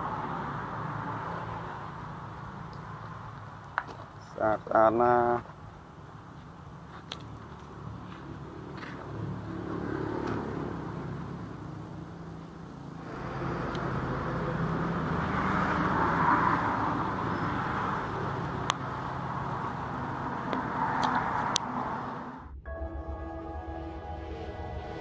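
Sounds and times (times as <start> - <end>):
road and wind noise: 0.0 - 22.6
low engine hum: 5.7 - 25.0.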